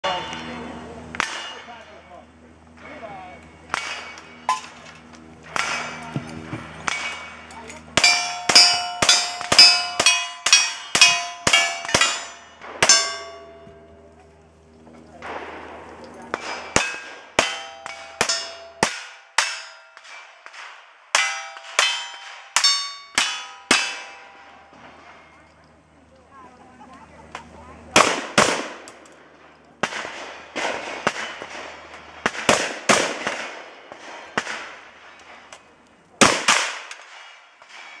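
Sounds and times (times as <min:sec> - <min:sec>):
steel target clanging: 0:00.0 - 0:02.2, 0:03.7 - 0:14.0, 0:16.3 - 0:25.4
gunshots echoing: 0:05.4 - 0:07.4, 0:08.0 - 0:13.3, 0:15.2 - 0:25.3, 0:28.0 - 0:35.5, 0:36.2 - 0:38.0
rifle shots: 0:28.0 - 0:29.0, 0:29.8 - 0:35.4, 0:36.2 - 0:38.0.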